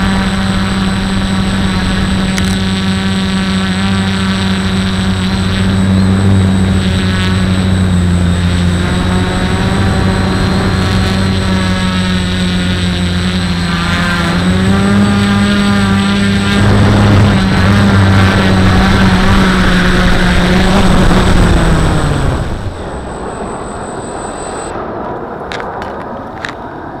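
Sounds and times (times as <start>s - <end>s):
drone motors whirring: 0.0s - 24.8s
thin high whine: 0.0s - 25.0s
clicks: 22.4s - 24.7s.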